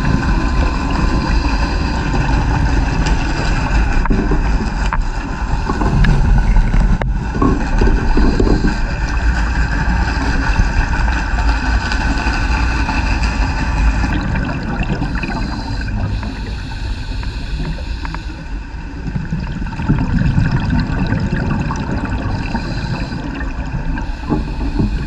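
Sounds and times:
underwater rumble and hiss: 0.0s - 25.0s.

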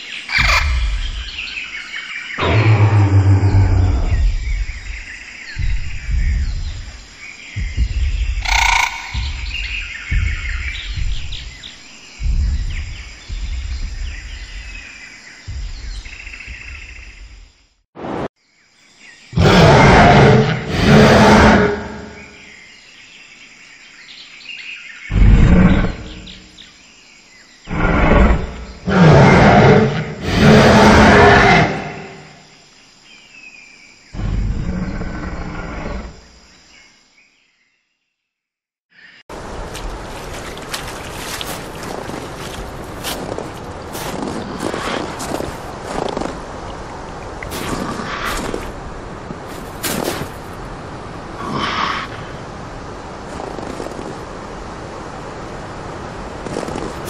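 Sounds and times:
birds chirping and trilling: 0.0s - 17.4s, 18.4s - 37.8s
insect noise: 0.0s - 38.3s, 38.9s - 57.0s
deep low rumbles: 0.3s - 1.6s, 2.4s - 17.5s, 25.1s - 26.5s
dinosaur roar: 2.4s - 4.9s, 19.4s - 22.3s, 25.1s - 26.4s, 27.7s - 32.4s, 34.2s - 36.2s, 51.4s - 52.2s
deep growling roar: 2.4s - 6.9s, 19.4s - 22.3s, 25.1s - 26.4s, 27.7s - 32.4s, 34.2s - 36.2s.

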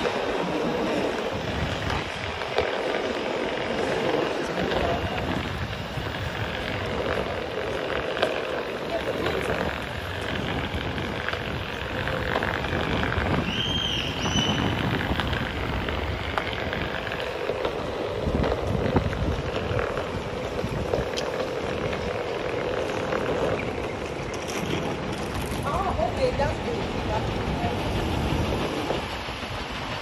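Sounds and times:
board wheels rumbling over paving: 0.0s - 30.0s
wind rushing over microphone: 0.0s - 30.0s.

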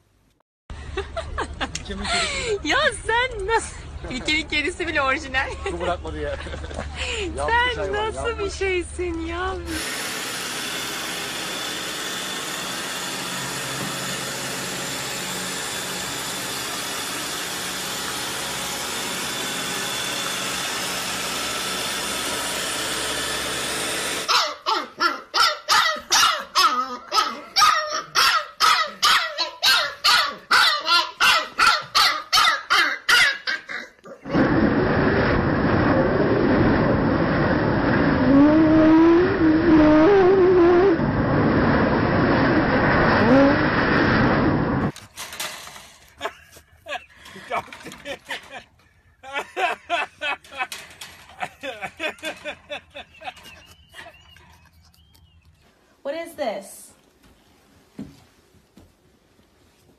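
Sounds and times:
robot vacuum whirring: 9.7s - 24.3s
puppy yapping: 24.3s - 33.9s
loud rushing noise: 34.3s - 38.6s, 41.0s - 44.9s.

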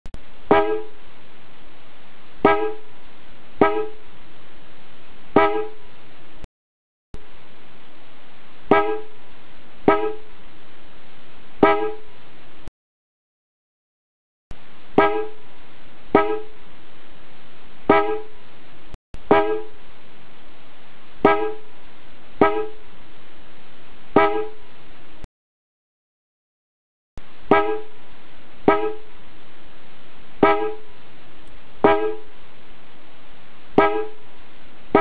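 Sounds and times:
sharp pitched blip: 0.5s - 1.0s, 2.4s - 2.8s, 3.6s - 4.0s, 5.4s - 5.8s, 8.7s - 9.1s, 9.9s - 10.2s, 11.6s - 12.0s, 15.0s - 15.4s, 16.2s - 16.5s, 17.9s - 18.3s, 19.3s - 19.7s, 21.2s - 21.6s, 22.4s - 22.8s, 24.2s - 24.6s, 27.5s - 27.9s, 28.7s - 29.0s, 30.4s - 30.8s, 31.8s - 32.2s, 33.8s - 34.2s
car horns blasting: 2.4s - 2.8s, 3.6s - 4.0s, 8.7s - 9.1s, 9.9s - 10.2s, 11.6s - 12.0s, 15.0s - 15.4s, 16.2s - 16.5s, 17.9s - 18.3s, 21.2s - 21.6s, 22.4s - 22.8s, 24.2s - 24.6s, 27.5s - 27.9s, 28.7s - 29.0s, 30.4s - 30.8s, 31.8s - 32.2s, 33.8s - 34.2s.

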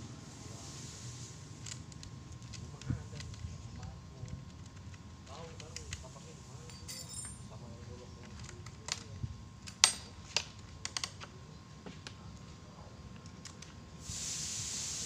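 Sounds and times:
steady hiss: 0.0s - 1.8s, 13.9s - 15.0s
clicks and knocks of tool and plastic: 8.2s - 12.2s.

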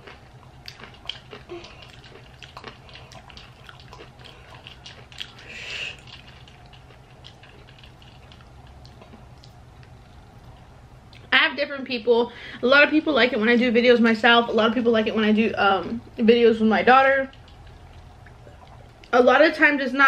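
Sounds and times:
person chewing: 0.0s - 11.3s, 17.3s - 19.1s.

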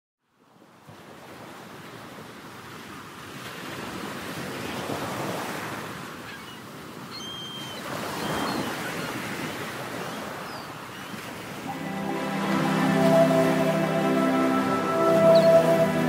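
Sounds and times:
ocean waves washing in: 11.2s - 16.0s.

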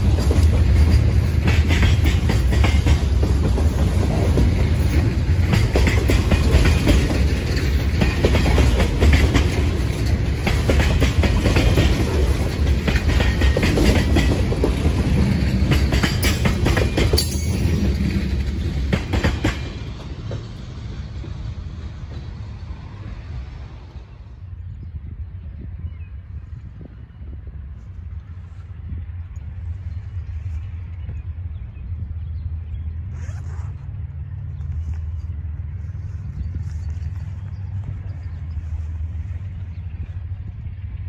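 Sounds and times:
train wheels clacking on rails: 0.0s - 23.8s.

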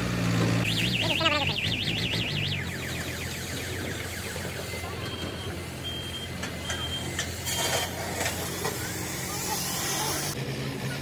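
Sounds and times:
short high electronic beeps: 0.7s - 2.8s
warbling high electronic tone: 0.7s - 6.0s.

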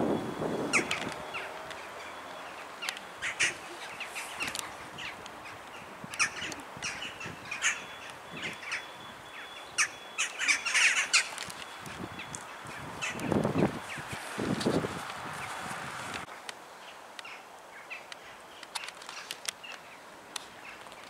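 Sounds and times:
crows calling: 0.7s - 14.4s.

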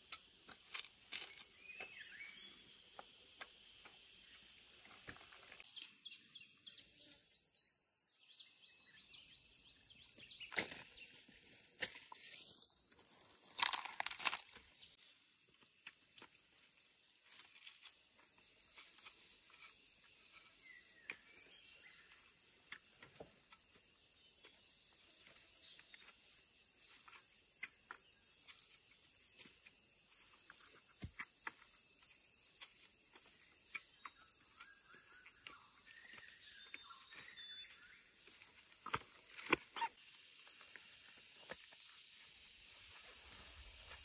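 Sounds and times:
faint bird chirps: 1.2s - 3.0s, 18.4s - 44.0s.

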